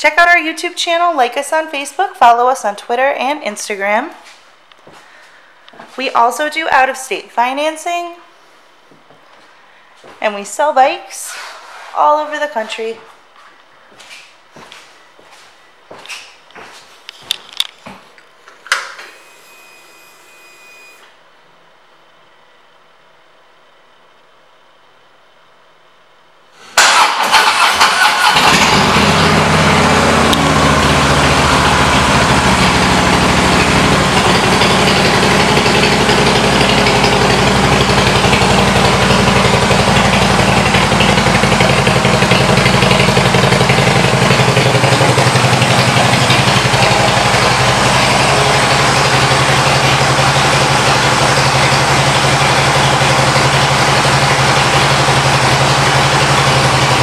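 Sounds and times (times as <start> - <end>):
motorcycle engine starting and idling: 26.6 - 57.0.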